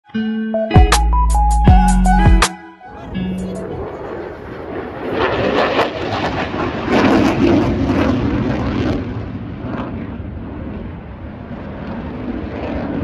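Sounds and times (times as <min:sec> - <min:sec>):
jet flying overhead: 0:02.8 - 0:13.0.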